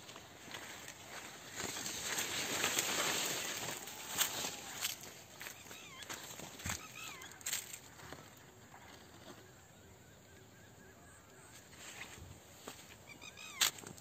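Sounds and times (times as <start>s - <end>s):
rustles and crunches: 0.0s - 9.3s, 11.6s - 14.0s
faint wavering animal calls: 3.5s - 12.2s, 12.8s - 14.0s.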